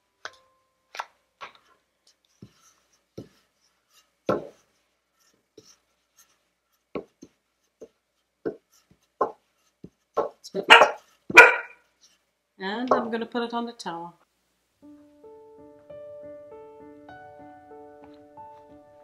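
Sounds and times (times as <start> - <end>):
rolling pin knocking on slab: 10.2 - 10.4.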